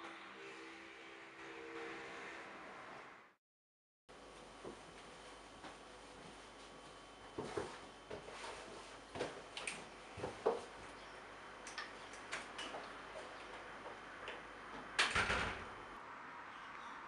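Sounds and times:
door shutting with thud: 15.0 - 15.7.

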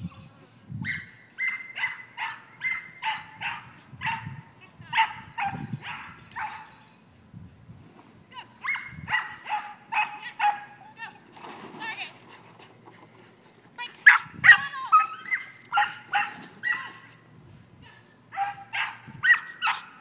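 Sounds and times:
dog barking high-pitched: 0.9 - 6.7, 8.6 - 11.0, 14.0 - 17.0, 18.3 - 20.0.

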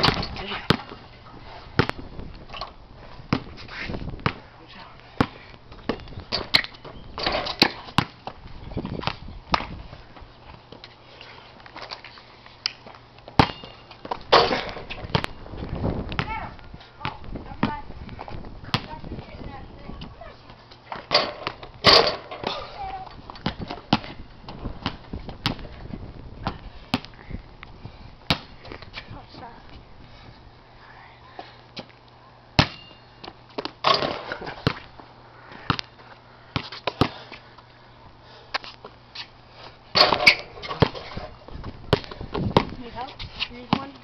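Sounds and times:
basketball bouncing on pavement: 0.0 - 1.1, 1.7 - 2.5, 3.2 - 4.5, 5.1 - 10.8, 12.8 - 27.2, 28.2 - 29.8, 32.6 - 37.4, 39.9 - 44.0
basketball knocking on backboard and rim: 40.0 - 41.1.

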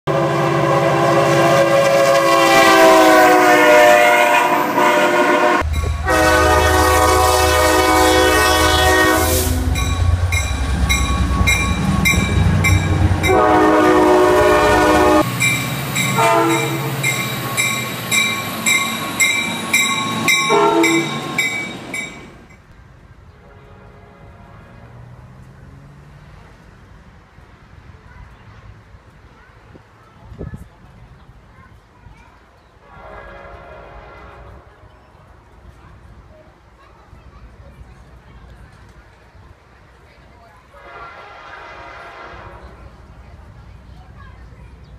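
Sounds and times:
locomotive air horn blasts: 0.1 - 10.1, 11.2 - 15.3, 16.2 - 17.1, 20.5 - 21.2, 32.9 - 34.9, 40.8 - 42.8
diesel engine rumbling: 4.8 - 22.5
train bell ringing: 5.6 - 6.3, 9.6 - 13.5, 15.2 - 22.6.

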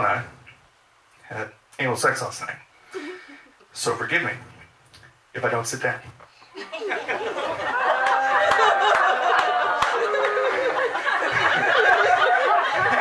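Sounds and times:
audience laughing: 6.6 - 13.0.

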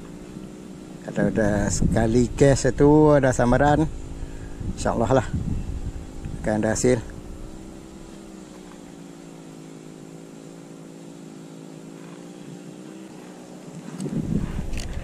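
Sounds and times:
distant engine running: 0.0 - 15.0
wind buffeting microphone: 1.2 - 8.0, 13.8 - 15.0.

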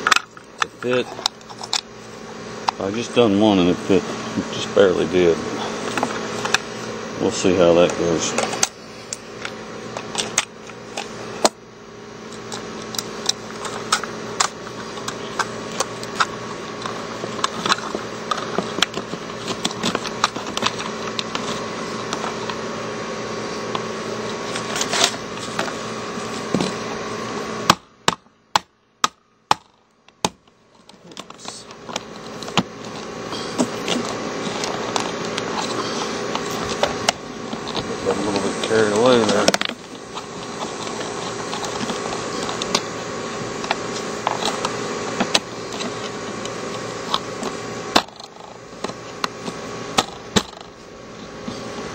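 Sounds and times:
air conditioner humming: 0.0 - 51.9
plastic clicks and scrapes: 12.3 - 22.6.

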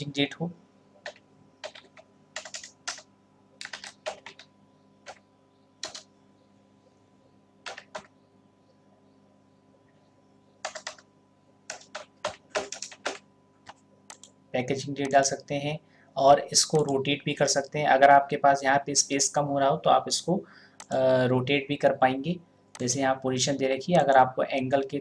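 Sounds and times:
typing on computer keyboard: 1.0 - 5.2, 5.8 - 6.1, 7.6 - 8.1, 10.6 - 11.1, 11.7 - 14.3.

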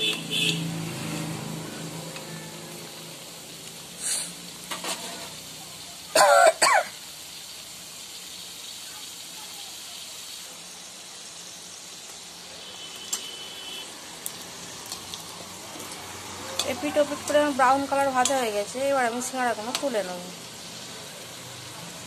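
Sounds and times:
deep-frying sizzle in hot oil: 0.0 - 22.0
person coughing: 6.2 - 7.0.

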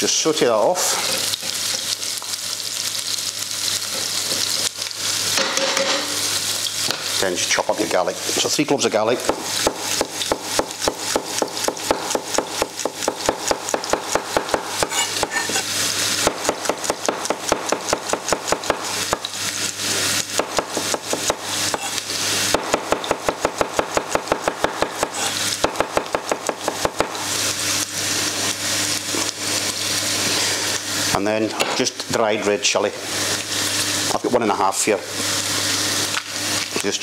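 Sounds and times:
onions sizzling in frying pan: 0.0 - 37.0
knife chopping on wooden board: 9.2 - 15.6, 16.2 - 19.3, 20.4 - 27.2.

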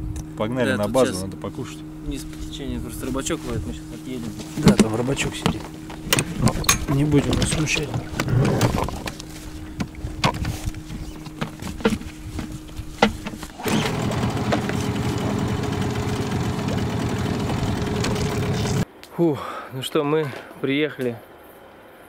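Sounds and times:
motorboat engine: 12.8 - 18.8
engine knocks: 13.1 - 18.8.

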